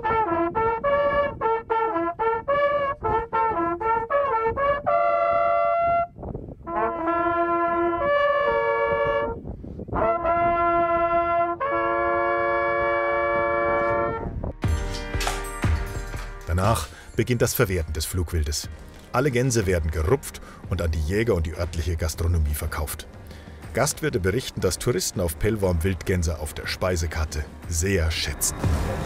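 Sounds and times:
hunting horns blowing: 0:00.0 - 0:06.1, 0:06.7 - 0:09.4, 0:10.0 - 0:14.3.

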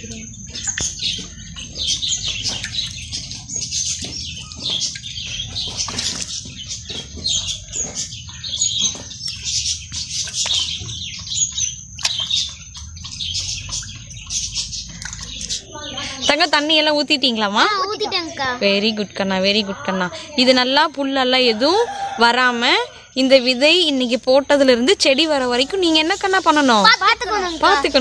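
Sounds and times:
small birds chirping and trilling: 0:00.0 - 0:28.0
water splashing on soil: 0:00.1 - 0:15.7.

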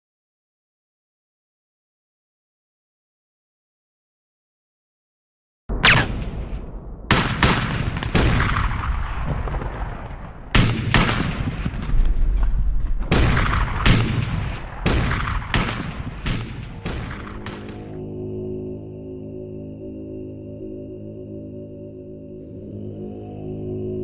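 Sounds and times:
gunshots: 0:05.7 - 0:17.9
low rumble: 0:05.7 - 0:24.0.

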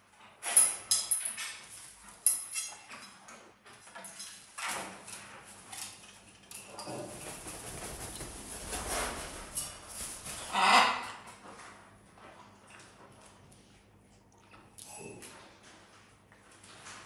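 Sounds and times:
parrot high-pitched calls: 0:10.4 - 0:11.2.

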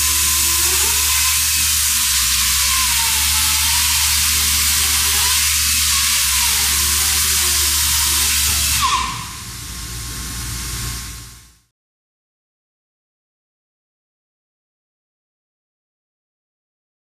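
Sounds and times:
chain saw cutting concrete: 0:00.0 - 0:08.8.

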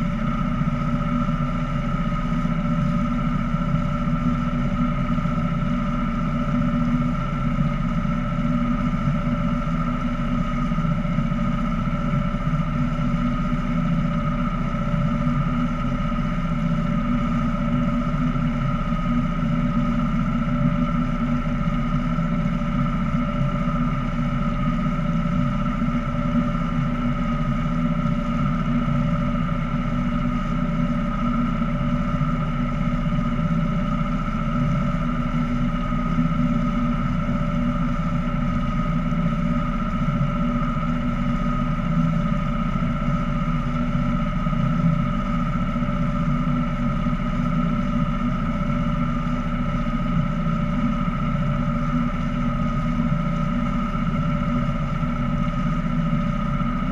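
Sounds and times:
boat motor droning: 0:00.0 - 0:56.9.

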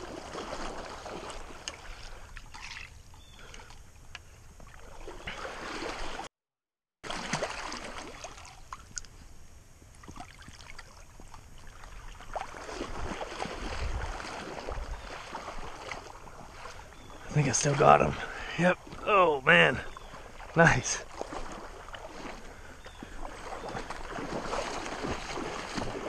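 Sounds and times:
water splashing and sloshing: 0:00.0 - 0:06.3, 0:07.0 - 0:26.0.

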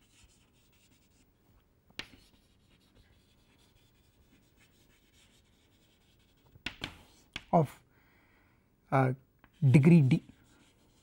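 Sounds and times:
chalk scratching on a chalkboard: 0:00.0 - 0:01.2, 0:02.0 - 0:07.5, 0:09.5 - 0:11.0
chalk tapping against a board: 0:02.0 - 0:04.0, 0:04.6 - 0:07.5.

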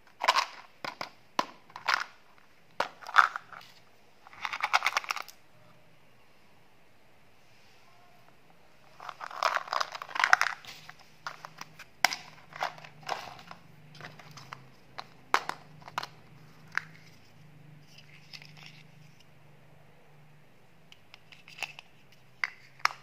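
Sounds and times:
plastic packaging crinkling: 0:09.0 - 0:15.9.

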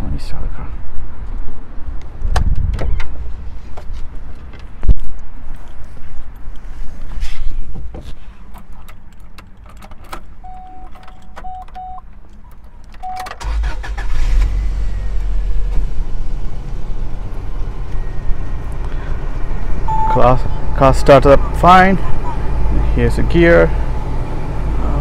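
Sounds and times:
car engine starting and idling: 0:08.2 - 0:25.0
short electronic beeps: 0:10.4 - 0:12.0, 0:17.9 - 0:18.4, 0:19.9 - 0:20.8.

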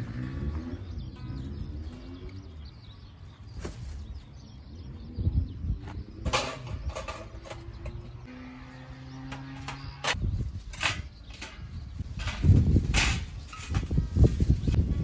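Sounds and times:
sharp knocks and clatters: 0:06.2 - 0:08.3.

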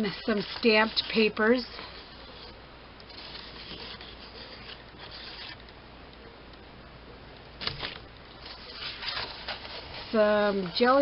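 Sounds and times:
paper sheets rustling: 0:00.0 - 0:02.5, 0:03.1 - 0:05.6, 0:07.6 - 0:11.0.

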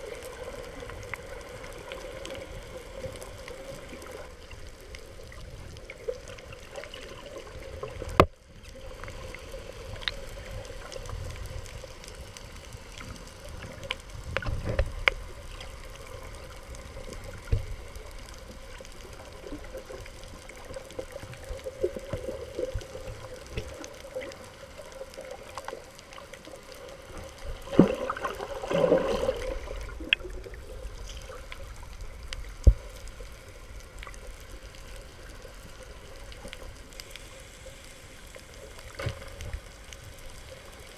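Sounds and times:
muffled underwater water noise: 0:00.0 - 0:40.9
water sloshing: 0:27.6 - 0:31.3.

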